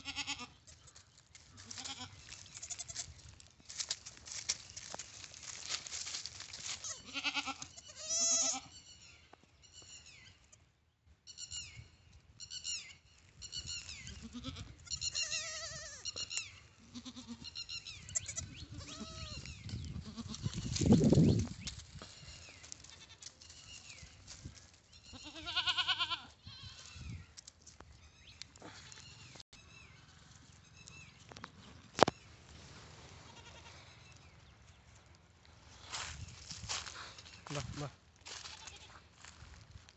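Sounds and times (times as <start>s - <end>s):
goat kids bleating: 0.0s - 3.2s, 6.6s - 9.0s, 13.7s - 20.8s, 22.1s - 23.8s, 24.9s - 27.0s, 33.2s - 34.2s, 38.3s - 39.3s.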